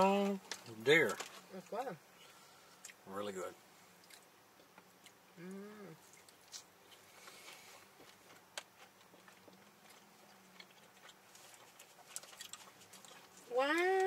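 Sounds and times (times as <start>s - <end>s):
chewing and mouth clicks: 4.0s - 5.2s, 6.0s - 14.0s
person humming mmm: 5.4s - 6.1s.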